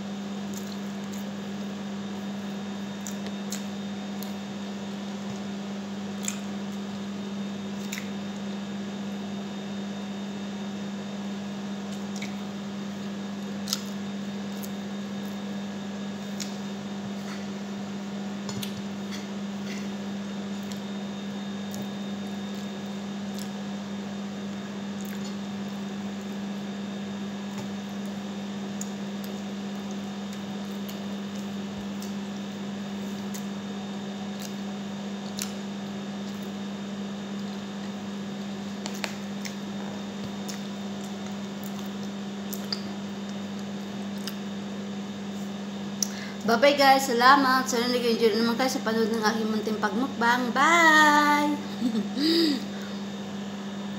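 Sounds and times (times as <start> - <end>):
steady low hum: 0.0 - 53.9
wet squishing and chewing: 0.5 - 1.4, 3.0 - 4.4, 6.1 - 7.0, 7.7 - 8.5, 11.9 - 15.5, 16.2 - 17.6, 18.4 - 21.0, 21.6 - 23.7, 24.5 - 26.3, 34.3 - 36.6, 37.3 - 44.5.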